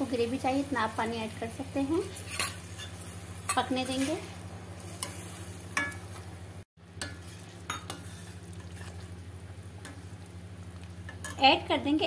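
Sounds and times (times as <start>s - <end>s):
spoon scraping metal pan: 2.1s - 4.3s.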